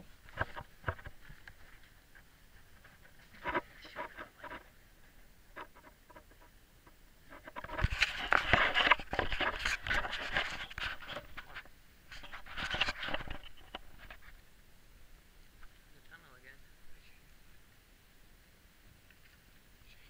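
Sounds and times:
people clambering over dry leaves: 0.0s - 6.4s
camera rubbing against surfaces: 0.2s - 4.7s, 5.5s - 6.5s, 7.2s - 14.4s.

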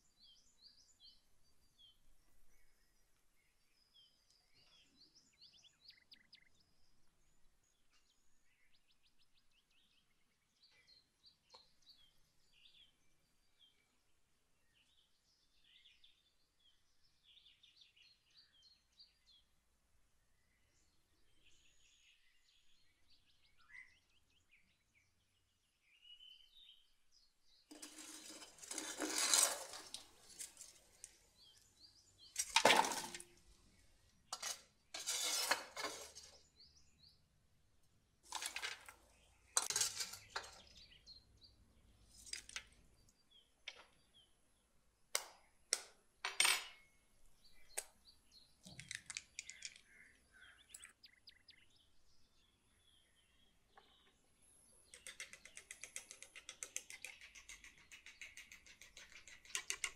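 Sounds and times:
metal scoop scraping oven floor: 27.7s - 31.1s, 32.4s - 33.3s, 34.4s - 36.4s, 38.3s - 38.9s, 39.6s - 40.6s
egg cracking: 27.7s - 31.2s.

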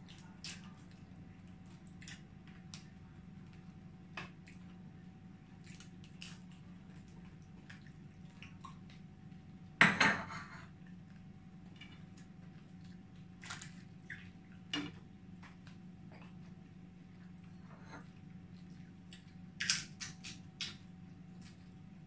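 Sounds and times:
dishes clattering on table: 9.8s - 10.7s.

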